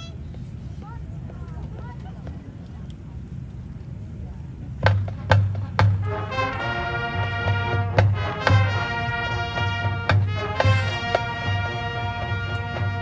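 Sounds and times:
drum and cymbal hits: 0:04.8 - 0:13.0
low drum beat: 0:04.8 - 0:13.0
brass holding chords: 0:05.1 - 0:13.0.

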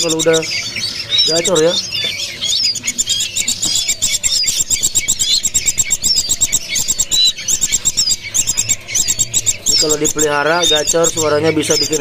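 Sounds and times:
caged birds chirping: 0:00.0 - 0:12.0.

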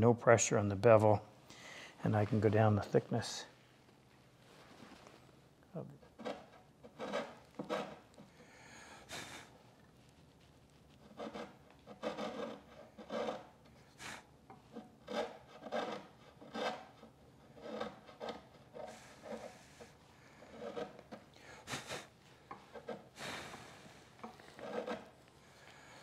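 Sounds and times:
chisel scraping wood: 0:06.0 - 0:08.5, 0:10.9 - 0:26.0.

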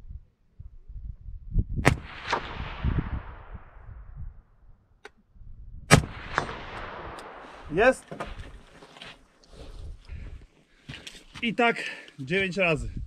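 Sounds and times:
rifle shots echoing: 0:01.8 - 0:03.9, 0:05.9 - 0:08.1
rustling: 0:07.5 - 0:11.4.

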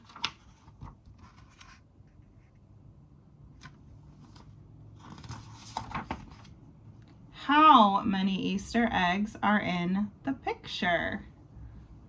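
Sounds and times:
book pages rustling: 0:00.0 - 0:02.7, 0:03.5 - 0:07.2.

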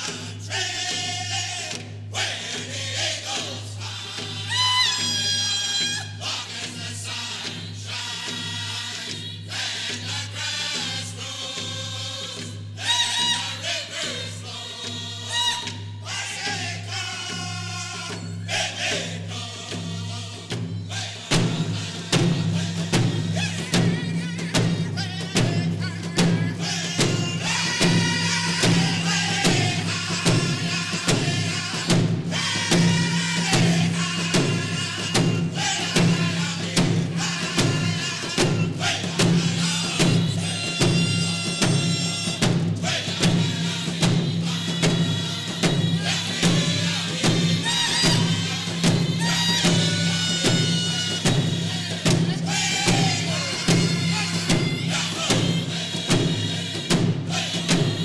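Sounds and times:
men singing together: 0:00.0 - 0:58.0
hand drums beating: 0:19.7 - 0:58.0.

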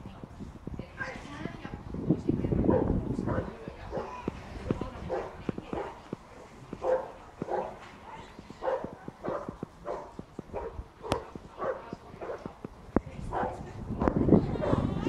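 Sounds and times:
dog barking: 0:02.7 - 0:04.2, 0:05.1 - 0:06.0, 0:06.8 - 0:12.5, 0:13.3 - 0:13.6.

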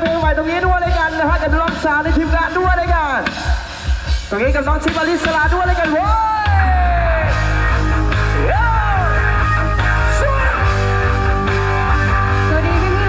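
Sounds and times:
bass-heavy music over loudspeakers: 0:00.0 - 0:13.0
sliding lead melody: 0:06.7 - 0:13.0.

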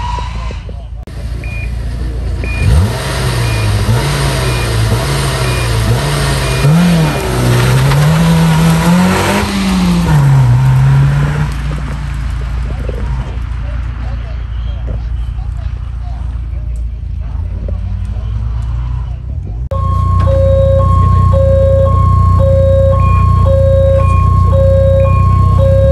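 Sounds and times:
car engine revving: 0:00.0 - 0:25.9
start clock beeps: 0:01.4 - 0:01.8, 0:19.7 - 0:25.9
car accelerating through gears: 0:01.4 - 0:16.5, 0:17.1 - 0:25.9.

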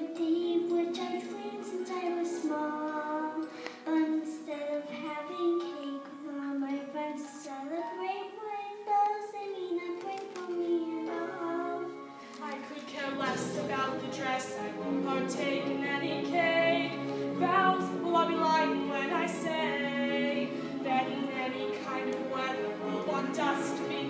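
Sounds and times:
girl singing into microphone: 0:00.0 - 0:13.7
woman singing: 0:00.0 - 0:24.0.

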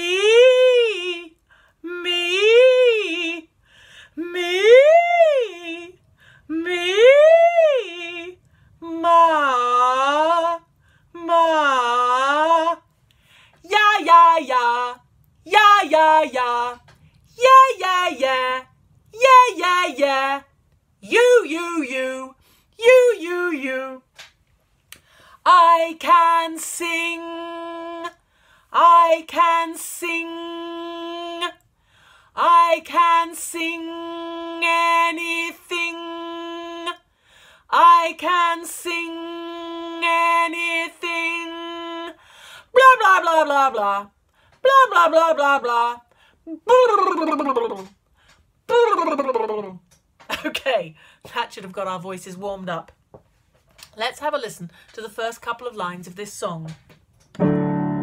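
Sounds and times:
woman singing vocal warm-up: 0:00.0 - 0:12.9, 0:13.5 - 0:24.1, 0:25.4 - 0:31.7, 0:32.3 - 0:47.9
woman singing vocal sirens: 0:04.2 - 0:10.6.

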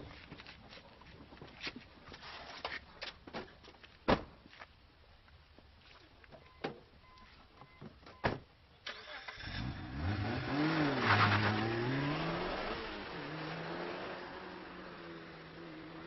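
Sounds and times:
car engine revving: 0:09.2 - 0:16.0
tyres spinning on wet road: 0:10.1 - 0:16.0.

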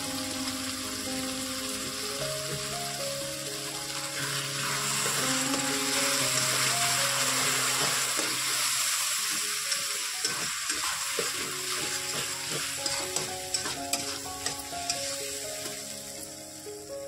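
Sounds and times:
masala sizzling in pan: 0:00.0 - 0:17.0
metal spatula scraping: 0:06.1 - 0:15.8.

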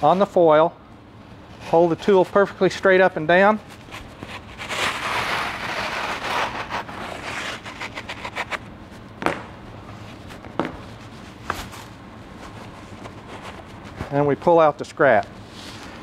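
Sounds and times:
blade scraping through insulation: 0:03.7 - 0:08.7.

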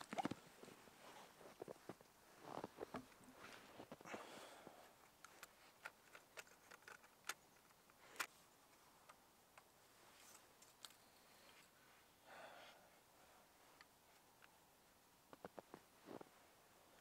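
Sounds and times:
soft rustle: 0:00.0 - 0:09.1, 0:09.8 - 0:17.0.

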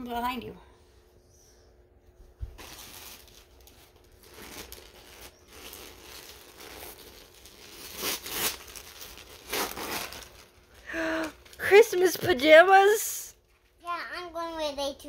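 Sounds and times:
wrapping paper rustling and tearing: 0:02.4 - 0:13.7.

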